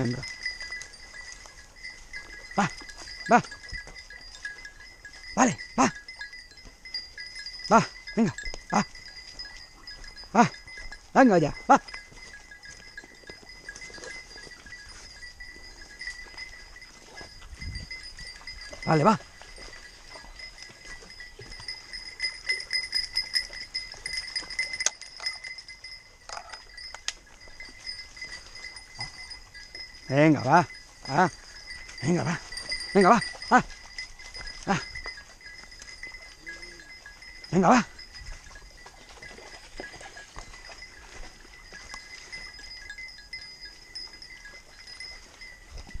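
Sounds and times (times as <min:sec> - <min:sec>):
dog bells jangling: 0:00.0 - 0:46.0
faint high ringing tone: 0:00.0 - 0:46.0
sharp clinks: 0:00.0 - 0:46.0
footsteps on stones and leaves: 0:11.9 - 0:25.5, 0:30.7 - 0:43.0.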